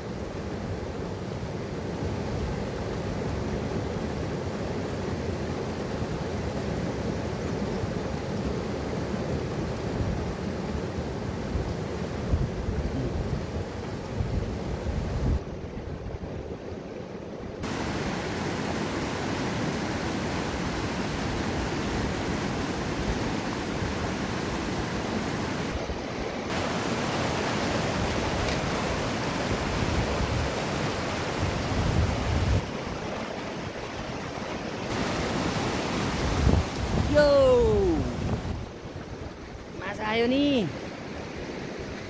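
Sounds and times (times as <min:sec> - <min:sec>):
river rushing over boulders: 0:00.0 - 0:42.0
wind on microphone: 0:11.5 - 0:16.6, 0:28.0 - 0:39.8.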